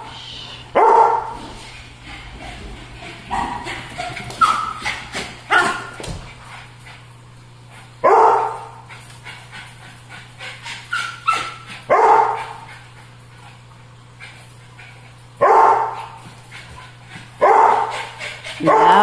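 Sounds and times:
small dog barking: 0:00.8 - 0:01.4, 0:05.5 - 0:05.9, 0:08.0 - 0:08.7, 0:10.9 - 0:12.6, 0:15.4 - 0:16.0, 0:17.4 - 0:18.0, 0:18.6 - 0:19.0
dog yipping: 0:04.4 - 0:04.9, 0:10.7 - 0:12.5, 0:18.6 - 0:19.0.

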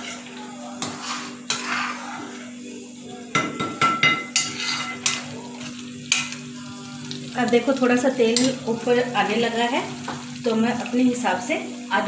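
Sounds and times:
spoon knocking and scraping pan: 0:00.8 - 0:02.3, 0:03.3 - 0:05.3, 0:10.0 - 0:10.3
spoon stirring thick gravy: 0:00.8 - 0:02.4.

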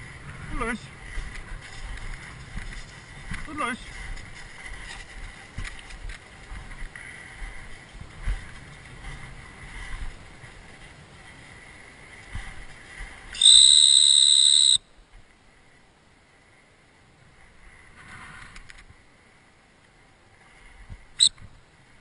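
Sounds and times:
dog whistle blast: 0:13.4 - 0:14.8.

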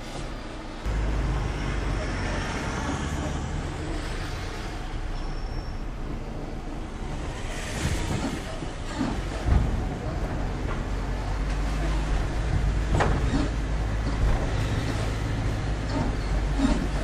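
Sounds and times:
van engine rumbling: 0:00.0 - 0:17.0
vehicle bumps: 0:07.1 - 0:17.0.

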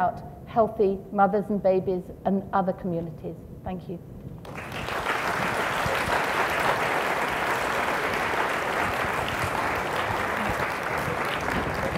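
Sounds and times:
crowd applauding: 0:04.4 - 0:11.9.

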